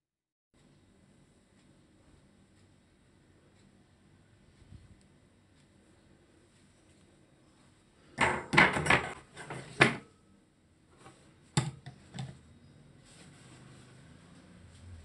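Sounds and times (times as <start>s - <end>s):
metal pan clattering on rack: 8.2s - 10.1s.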